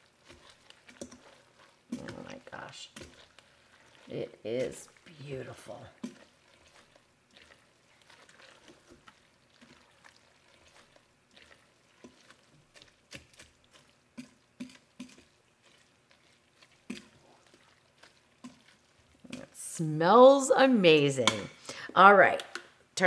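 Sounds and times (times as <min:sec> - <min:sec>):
wet squishing of pasta: 0:00.0 - 0:19.7.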